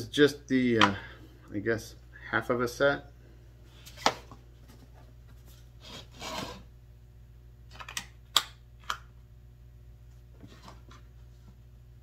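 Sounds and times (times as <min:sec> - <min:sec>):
scraping rub: 0:05.8 - 0:06.7.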